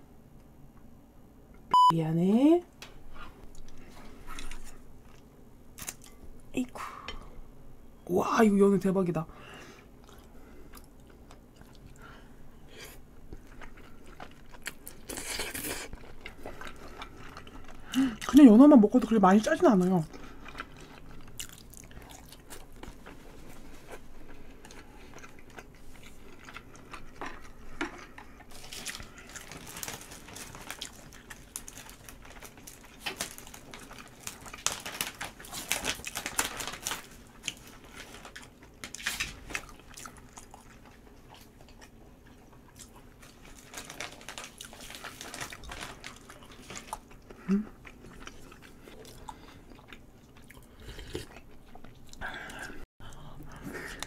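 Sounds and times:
person chewing and smacking: 0:10.0 - 0:12.1, 0:12.9 - 0:18.4, 0:20.1 - 0:54.0.

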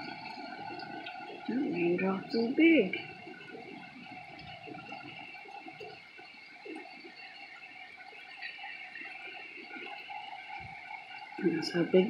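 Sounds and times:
heavy rain falling: 0:00.0 - 0:05.6.

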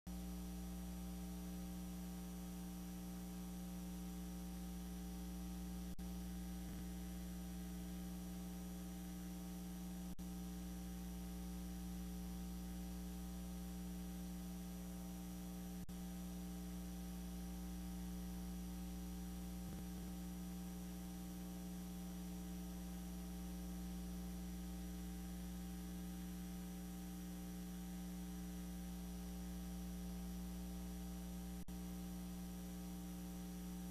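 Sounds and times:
electrical mains hum: 0:00.1 - 0:33.9.

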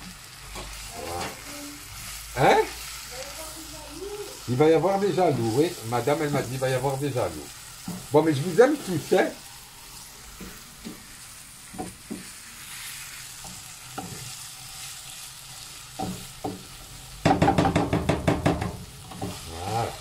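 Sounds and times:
meat sizzling in a frying pan: 0:00.0 - 0:20.0
spatula scraping a pan: 0:00.5 - 0:02.1, 0:19.0 - 0:20.0.

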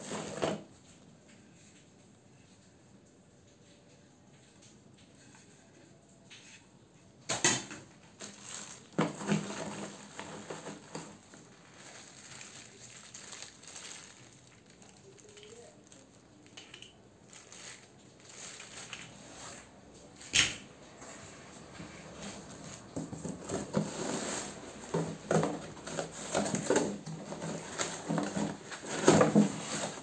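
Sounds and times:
plastic wrapping rustling: 0:07.7 - 0:30.0.

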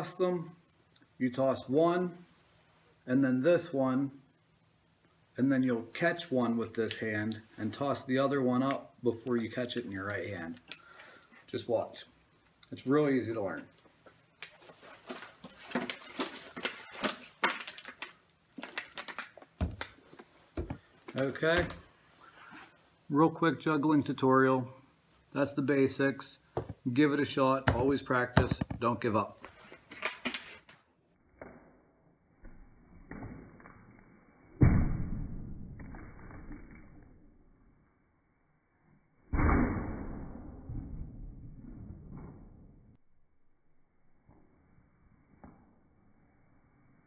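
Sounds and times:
plastic bottles slapping into hands: 0:14.4 - 0:21.8.

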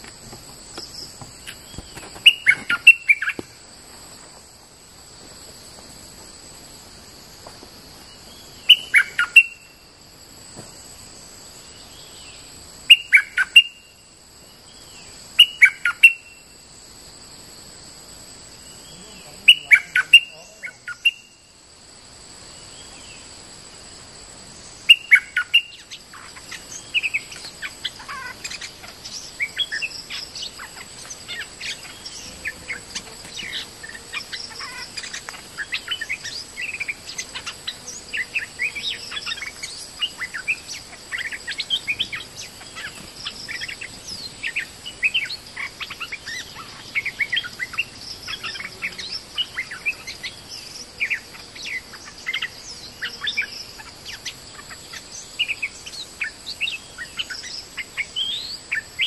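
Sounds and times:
bird singing chirpy phrases: 0:18.7 - 0:21.4.

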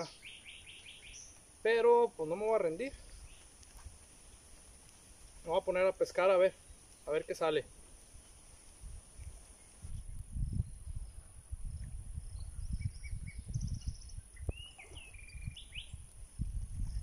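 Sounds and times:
birds chirping and whistling: 0:00.0 - 0:01.5, 0:11.8 - 0:16.1
wind buffeting microphone: 0:07.7 - 0:17.0.

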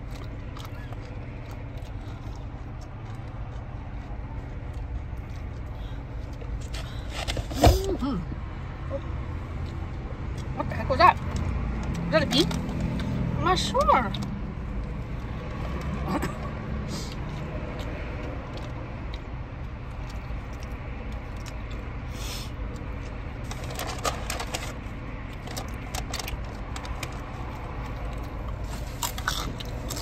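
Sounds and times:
car engine running: 0:00.0 - 0:30.0
clicks and crinkles of handling: 0:23.0 - 0:28.9.

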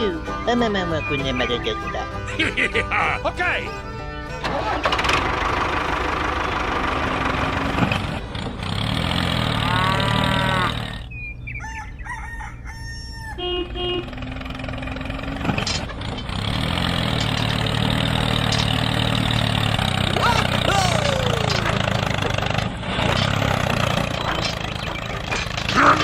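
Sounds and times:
tractor engine running: 0:00.0 - 0:11.4, 0:13.4 - 0:26.0
rooster crowing: 0:11.6 - 0:13.6.

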